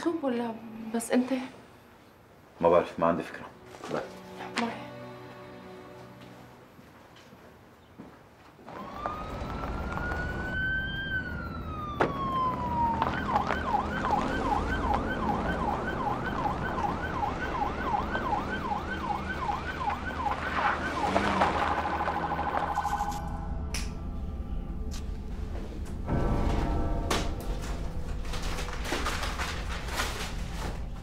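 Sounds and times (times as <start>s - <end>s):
police siren wailing and yelping: 8.7s - 23.3s.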